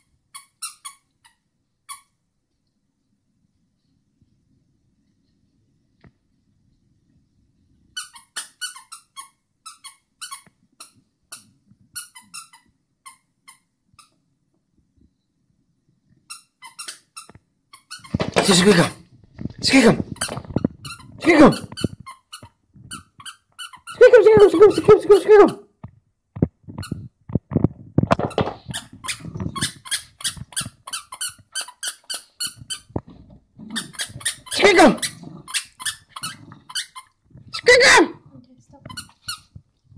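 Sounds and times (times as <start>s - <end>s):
squeaky toy squeaking: 0.3s - 2.1s, 8.0s - 14.2s, 16.3s - 19.0s, 19.7s - 25.7s, 28.2s - 33.0s, 33.7s - 38.2s, 38.8s - 39.6s.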